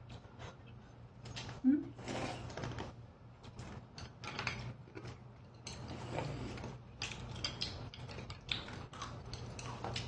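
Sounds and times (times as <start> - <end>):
person chewing noodles: 4.8 - 10.0.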